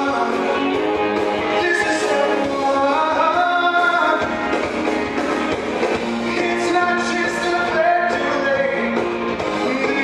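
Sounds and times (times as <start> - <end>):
man singing show tune: 0.0 - 0.8, 1.4 - 4.4, 6.1 - 10.0
theatre pit band playing: 0.0 - 10.0.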